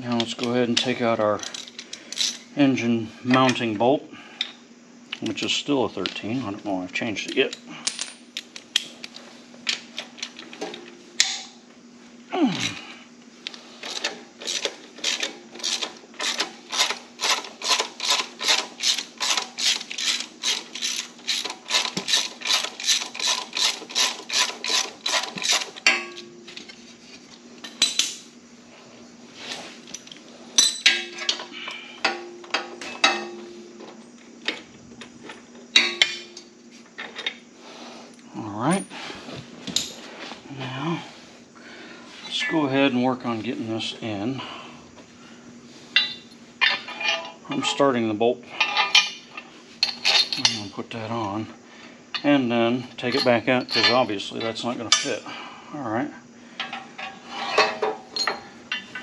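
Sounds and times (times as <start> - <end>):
ratchet wrench clicking: 13.9 - 25.7
metallic clinks of tools: 49.8 - 50.7, 53.0 - 55.2, 57.6 - 59.0.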